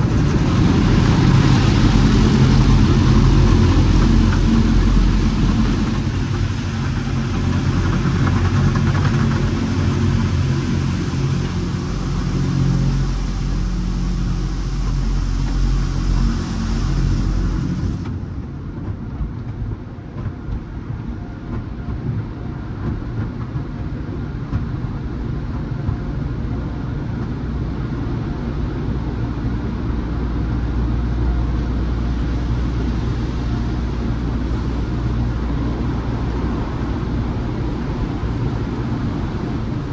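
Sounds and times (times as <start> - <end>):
wash brushes working: 0.0 - 18.1
low rumble of machinery: 0.0 - 39.9
water spray hissing over glass: 0.5 - 18.1.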